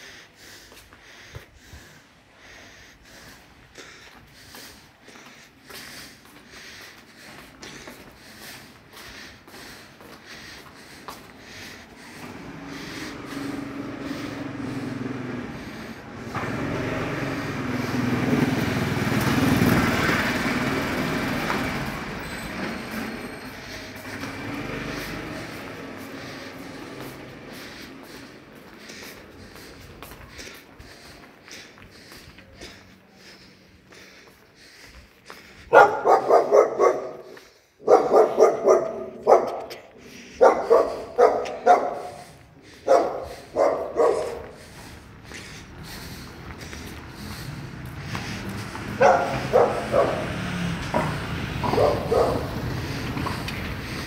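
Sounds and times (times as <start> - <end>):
small engine running: 9.5 - 31.1, 42.6 - 54.0
dog barking: 35.7 - 42.2, 42.8 - 44.5, 49.0 - 50.3, 51.6 - 52.6.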